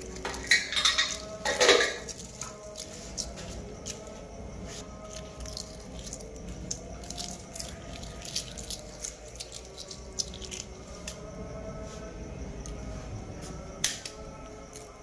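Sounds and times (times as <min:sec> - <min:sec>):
egg shells cracking while peeled: 0:00.0 - 0:04.0, 0:05.0 - 0:11.2
faint steady hum: 0:00.0 - 0:15.0.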